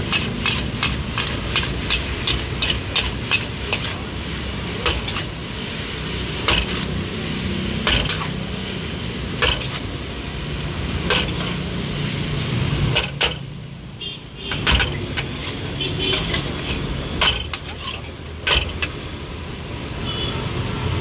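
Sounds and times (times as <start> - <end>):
metal spatula striking a wok: 0.0 - 4.0, 4.8 - 5.4, 6.3 - 7.0, 7.8 - 8.4, 9.3 - 9.8, 11.0 - 11.6, 12.9 - 13.6, 14.5 - 19.0
noodles sizzling in a wok: 0.0 - 21.0.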